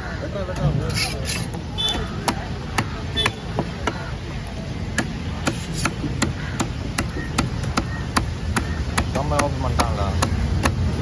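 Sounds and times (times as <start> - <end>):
knife chopping fish on wooden block: 2.1 - 4.1, 4.9 - 11.0.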